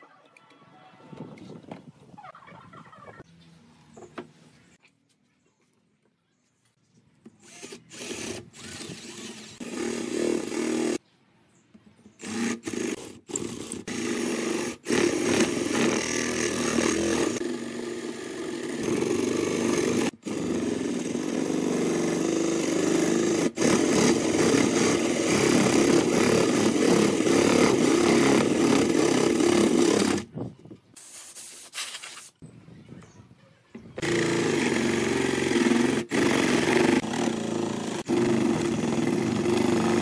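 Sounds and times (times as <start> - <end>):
cordless drill boring into wood: 7.4 - 11.0, 12.2 - 30.3, 34.0 - 40.0.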